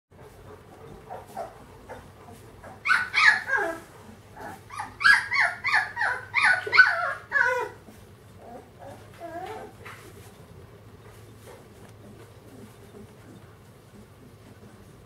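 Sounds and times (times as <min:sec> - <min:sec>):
puppy yipping: 0:01.1 - 0:07.8.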